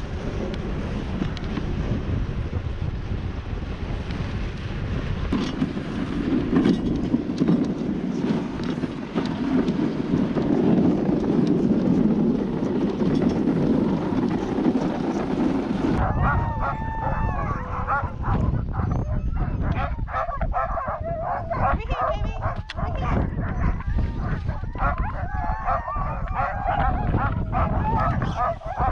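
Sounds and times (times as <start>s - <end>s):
wind rushing over microphone: 0.0s - 28.9s
sled dogs yipping and whining: 8.6s - 28.9s.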